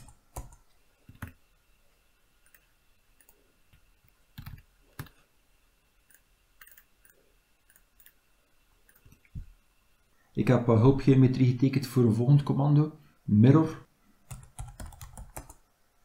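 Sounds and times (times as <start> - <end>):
keyboard keystrokes: 14.3 - 15.6.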